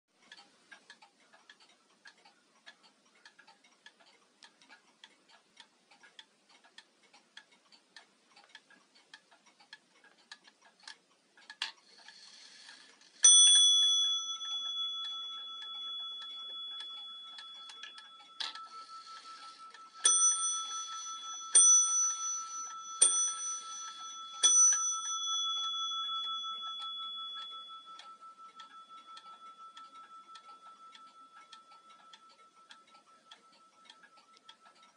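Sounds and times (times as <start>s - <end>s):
wall clock ticking: 0.1s - 34.9s
clock bell strikes: 13.2s - 33.8s.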